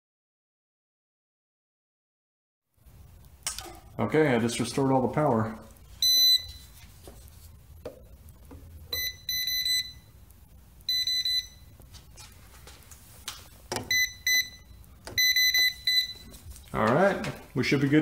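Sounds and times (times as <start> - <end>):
voltage tester pen beeping: 8.9 - 10.1, 10.8 - 11.7, 13.8 - 16.3.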